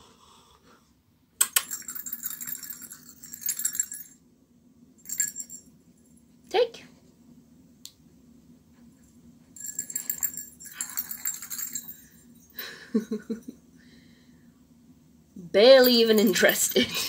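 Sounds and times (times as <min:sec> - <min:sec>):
small bells jingling in toy: 0:01.5 - 0:04.2, 0:05.0 - 0:06.2, 0:09.6 - 0:12.6, 0:15.7 - 0:17.0.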